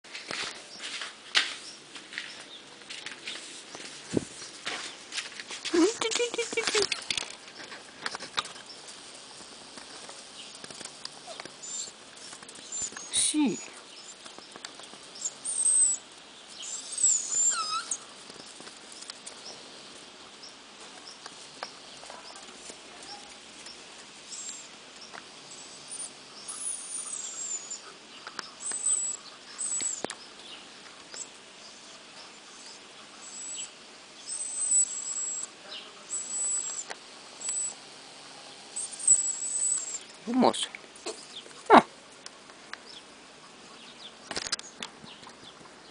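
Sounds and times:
puppy whimpering: 12.7s - 13.8s, 16.6s - 18.0s, 38.8s - 40.1s.

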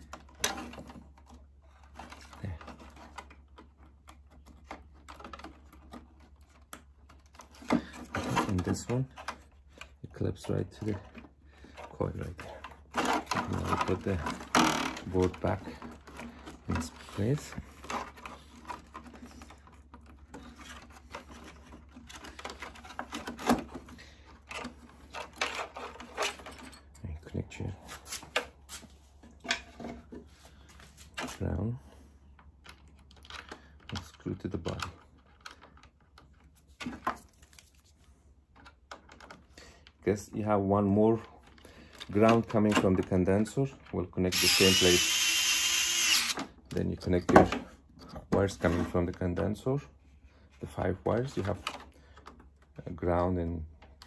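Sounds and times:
plastic clicks and rattles: 32.4s - 37.6s.

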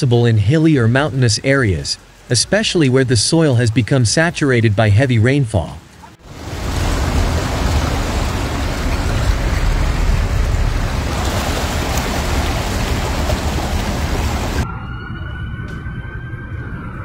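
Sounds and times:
water splashing against car: 6.2s - 14.6s
deep rumble: 6.2s - 17.0s.

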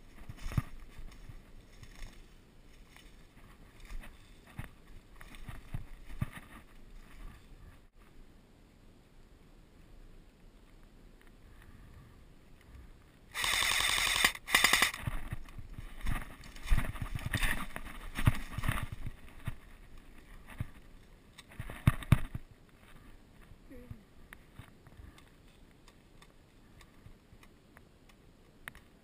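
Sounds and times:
rustling branches and brush: 0.0s - 29.0s
airsoft rifle bursts: 13.3s - 15.0s.

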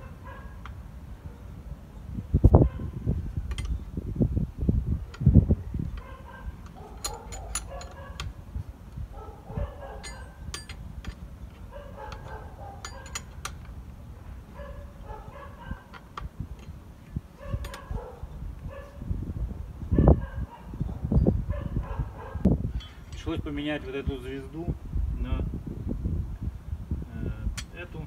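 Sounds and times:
spanner metal clicks: 5.9s - 8.4s, 10.0s - 13.8s, 17.6s - 17.9s.

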